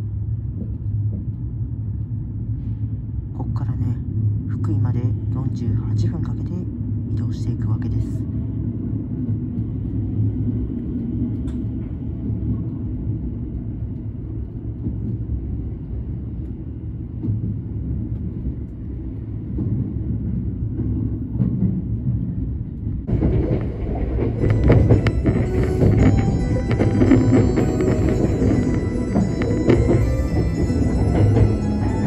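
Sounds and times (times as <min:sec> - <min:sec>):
train wheels rumbling on rails: 0:00.0 - 0:32.0
background music: 0:23.2 - 0:32.0.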